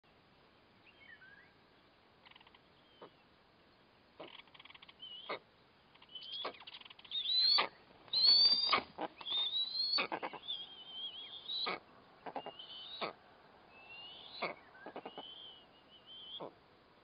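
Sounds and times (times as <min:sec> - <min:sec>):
eagles yelping calls: 0:07.2 - 0:13.2, 0:14.0 - 0:15.6.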